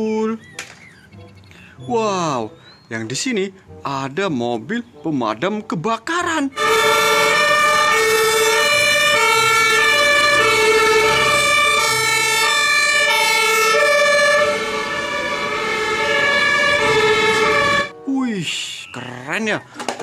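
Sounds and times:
two-tone emergency sirens: 0:06.6 - 0:18.0.

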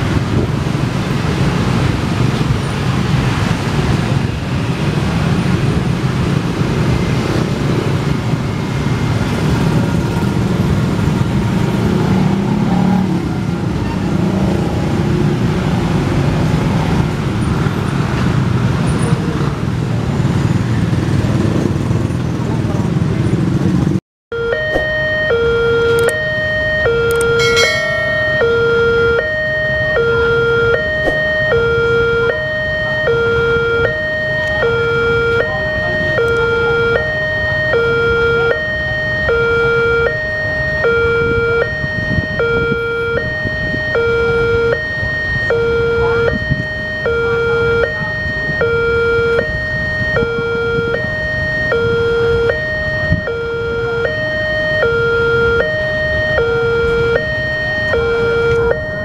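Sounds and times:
two-tone crossing alarm: 0:03.2 - 0:13.2, 0:24.3 - 0:59.0.

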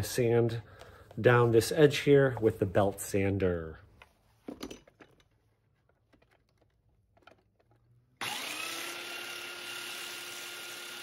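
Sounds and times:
belt sander motor whine: 0:08.2 - 0:11.0.

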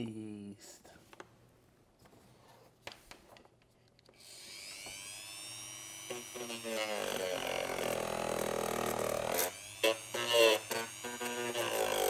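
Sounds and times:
small electric motor buzzing: 0:04.2 - 0:12.0.

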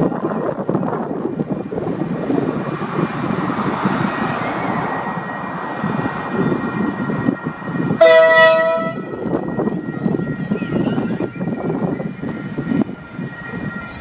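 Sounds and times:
diesel locomotive engine running: 0:00.0 - 0:14.0
locomotive horn blast: 0:08.0 - 0:09.4.

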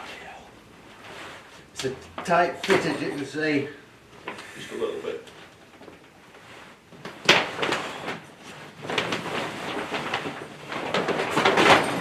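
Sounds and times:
tent fabric rustling and scraping: 0:00.8 - 0:01.7, 0:05.4 - 0:12.0.

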